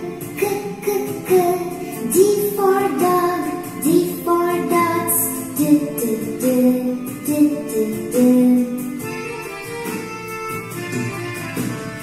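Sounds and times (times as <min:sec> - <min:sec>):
woman singing: 0:00.0 - 0:08.9
instrumental backing with beat: 0:00.0 - 0:12.0.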